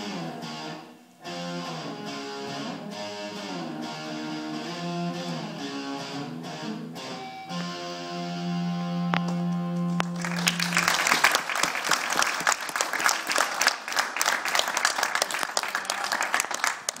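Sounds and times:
electric guitar chord ringing: 0.0 - 11.0
audience applauding: 10.0 - 17.0.

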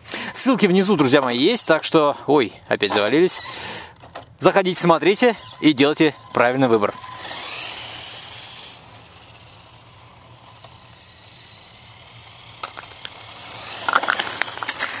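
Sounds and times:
electric motor and gears whining: 0.4 - 15.0
tyre noise on asphalt: 6.4 - 15.0
sharp clicks: 12.6 - 15.0.

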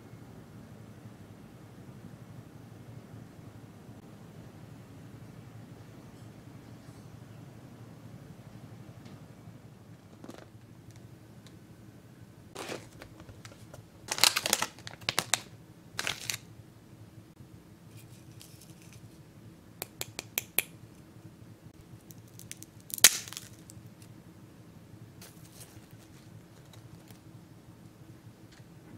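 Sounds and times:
packaging crinkling: 12.6 - 16.5, 22.1 - 23.8
rice cracker snapping: 14.1 - 16.4, 22.1 - 23.8.

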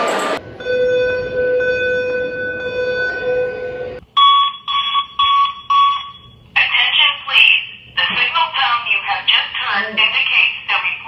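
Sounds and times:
pulsing alarm beeps: 0.5 - 6.4.

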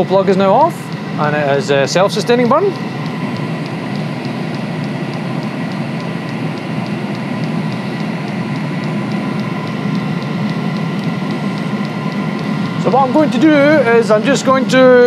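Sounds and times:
fuel pump ticking: 0.0 - 15.0
heater combustion and fan rush: 0.0 - 15.0.

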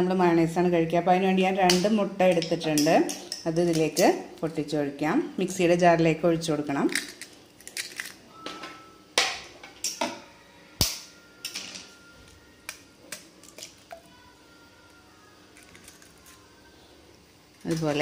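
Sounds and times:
eggs cracking against steel bowl: 1.7 - 4.2, 6.7 - 8.2, 12.3 - 14.1, 15.4 - 16.6, 17.5 - 18.0.

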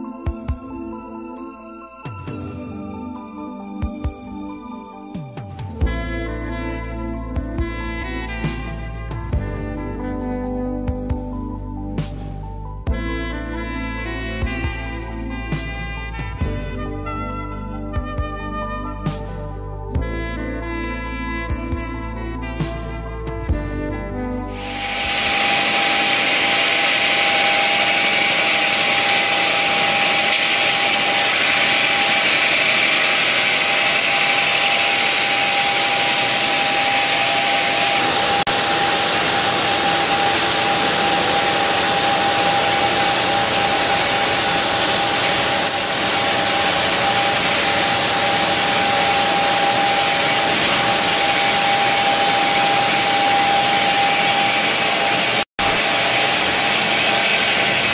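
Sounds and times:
stone cutting machine whine and hiss: 24.5 - 57.9.

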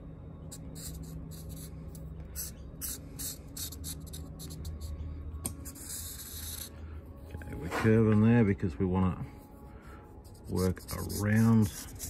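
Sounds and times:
low steady hum: 0.0 - 12.0
marker scratching on steel: 0.5 - 6.8, 10.2 - 12.0.

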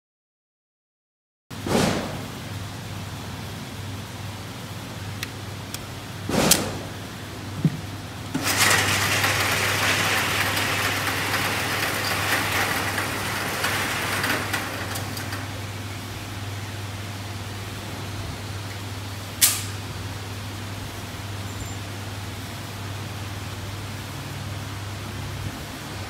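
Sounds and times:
sharp knock: 1.7 - 2.3, 6.3 - 6.9
motorised target carrier running: 8.3 - 17.6.

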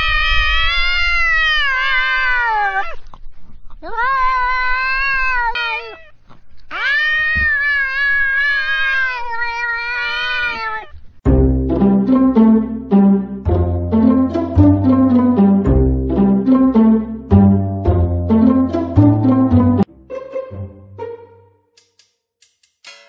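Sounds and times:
cat yowling: 0.0 - 3.0, 3.8 - 6.1, 6.7 - 11.0.

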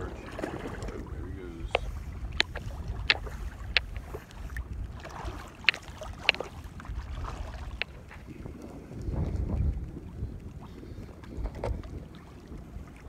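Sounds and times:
shallow water lapping: 0.0 - 13.0
wind rumbling on microphone: 0.0 - 13.0
sharp clicks: 1.6 - 4.5, 5.6 - 6.6.

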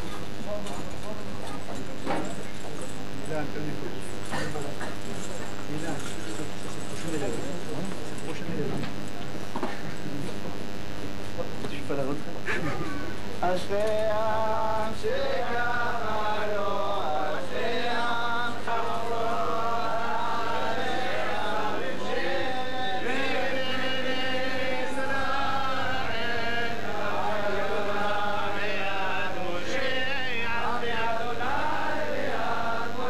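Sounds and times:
steady low hum: 0.0 - 33.0
voices chanting prayer: 13.4 - 33.0.

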